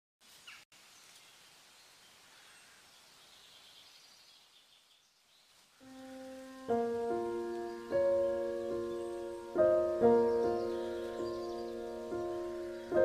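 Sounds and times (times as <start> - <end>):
faint background hiss: 0.2 - 13.0
soft background music: 5.8 - 13.0.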